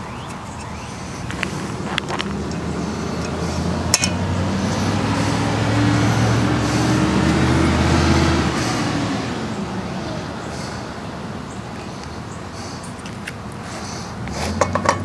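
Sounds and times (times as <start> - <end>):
vehicle driving past: 1.3 - 11.6.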